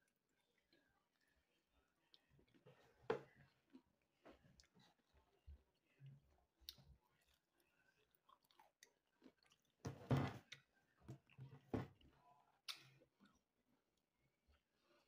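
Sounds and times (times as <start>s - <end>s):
person chewing: 6.6s - 10.6s.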